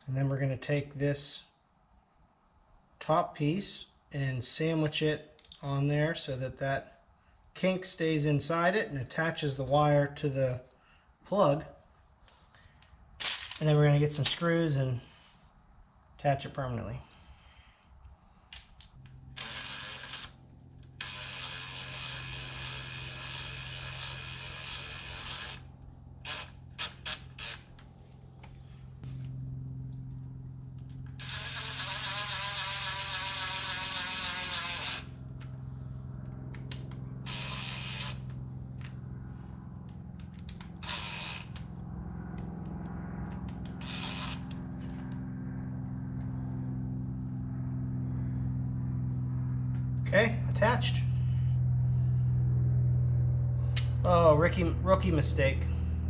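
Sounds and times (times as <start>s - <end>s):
steady low hum: 0.0s - 56.0s
cordless drill driving screws: 19.4s - 20.4s, 21.0s - 25.6s, 31.1s - 35.1s, 37.3s - 38.3s, 40.8s - 41.6s, 43.8s - 44.6s.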